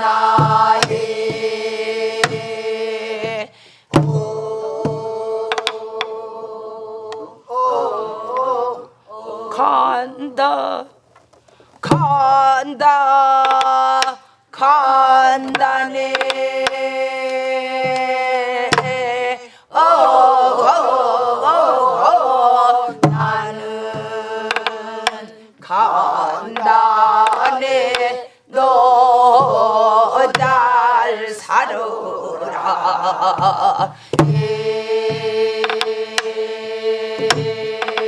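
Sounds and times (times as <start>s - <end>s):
group of voices singing: 0.0s - 10.5s, 11.8s - 38.0s
barrel drum strikes: 0.3s - 1.6s, 2.2s - 2.6s, 3.2s - 6.1s, 22.9s - 25.2s, 33.4s - 36.4s, 37.2s - 38.0s
woman singing folk song: 11.8s - 19.6s.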